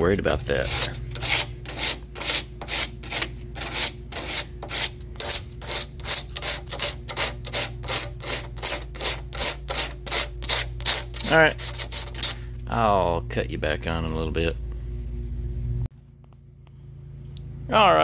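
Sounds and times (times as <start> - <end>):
low hum: 0.0 - 18.0
sandpaper sanding strokes: 0.5 - 12.4.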